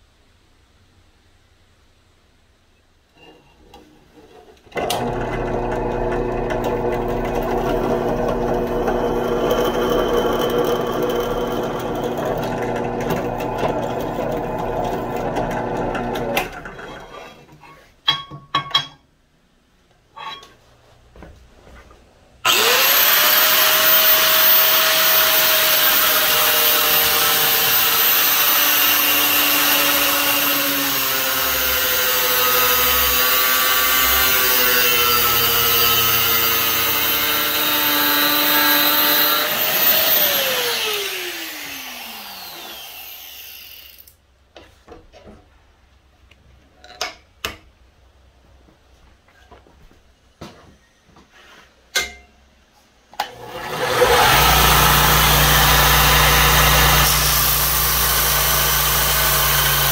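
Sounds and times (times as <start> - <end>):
grinder cutting steel: 4.9 - 17.2, 22.5 - 44.2, 53.3 - 59.9.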